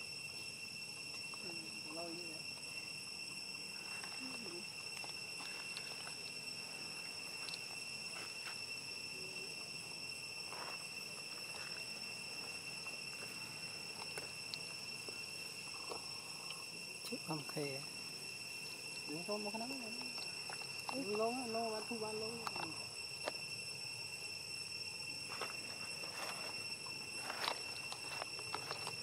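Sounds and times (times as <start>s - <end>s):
high-pitched insect drone: 0.0s - 29.0s
faint clicks and rustles: 25.3s - 29.0s.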